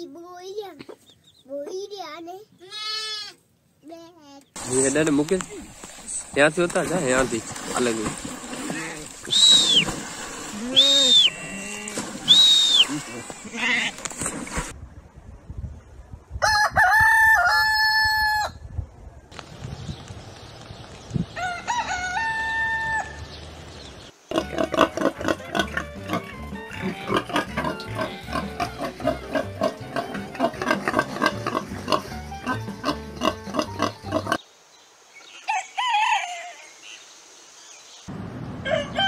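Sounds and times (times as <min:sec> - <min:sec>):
hen call: 0:09.2 - 0:13.9
pig squealing and grunting: 0:10.5 - 0:12.0, 0:24.3 - 0:34.4
rooster crowing: 0:16.4 - 0:18.6, 0:21.4 - 0:23.2, 0:35.5 - 0:36.8, 0:38.6 - 0:39.0.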